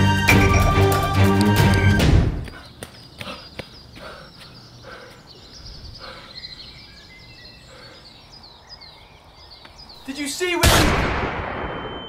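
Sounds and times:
man panting: 0:02.4 - 0:06.6, 0:07.6 - 0:08.3
small birds chirping: 0:02.4 - 0:10.6.

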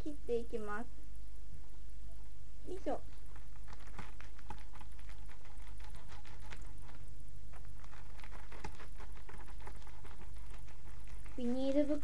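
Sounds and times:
steady low hum: 0:00.0 - 0:12.0
knife crunching through candy in bag: 0:03.1 - 0:12.0.

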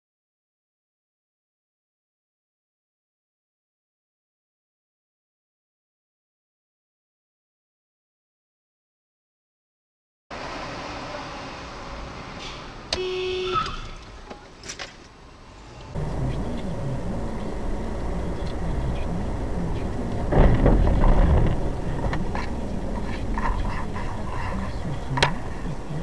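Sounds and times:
car engine and road noise: 0:10.3 - 0:26.0
short horn-like tone: 0:13.0 - 0:13.9.

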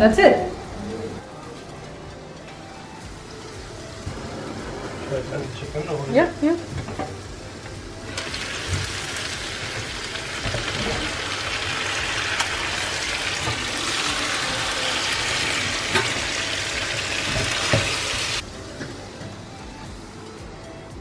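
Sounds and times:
vegetables sizzling in a pan: 0:03.2 - 0:18.5.

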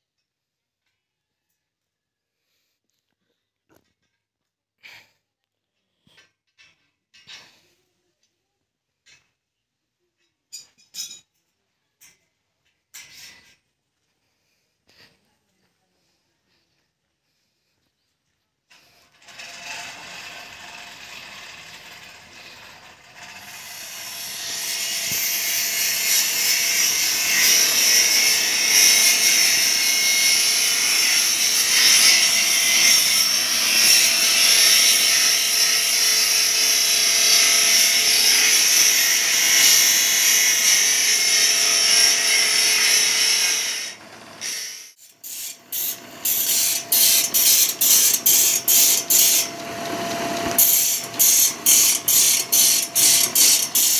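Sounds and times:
grinding wheel on steel blade: 0:18.8 - 0:53.9.

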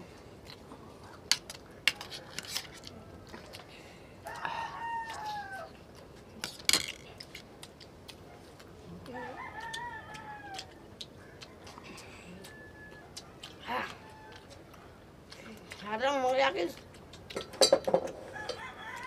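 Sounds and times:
rooster crowing: 0:04.2 - 0:05.8, 0:09.1 - 0:10.9, 0:11.5 - 0:13.2, 0:13.8 - 0:14.6, 0:18.2 - 0:19.0
utensils clinking on metal tray: 0:06.5 - 0:07.0.

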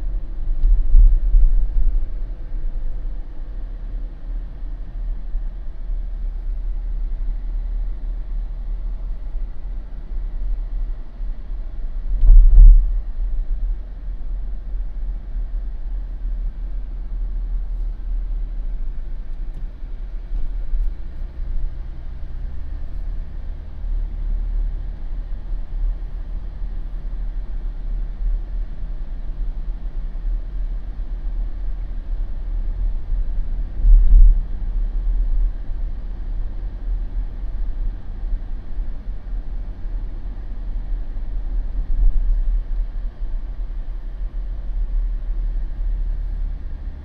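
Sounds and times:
vehicle tyres and engine rumbling: 0:00.0 - 0:47.0
heavy low thumps: 0:12.2 - 0:13.1.

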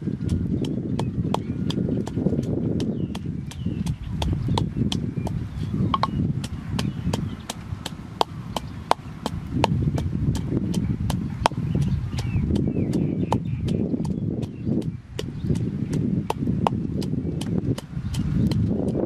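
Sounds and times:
pestle pounding in mortar: 0:00.0 - 0:19.0.

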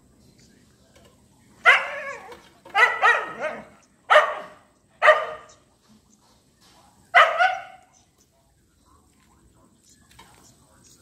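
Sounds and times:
small dog barking: 0:01.6 - 0:05.6, 0:07.1 - 0:07.9.

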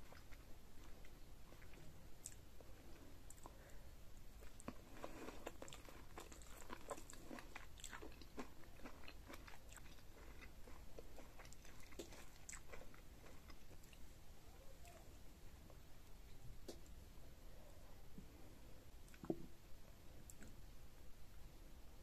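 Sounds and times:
chewing corn on the cob: 0:04.3 - 0:14.0.

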